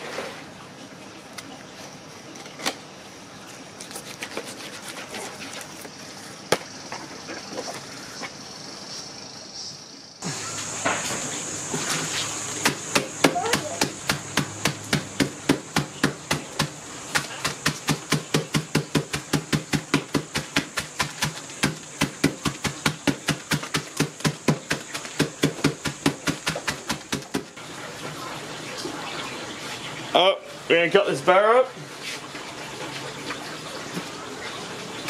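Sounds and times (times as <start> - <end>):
stick pounding snack packet: 12.6 - 27.5.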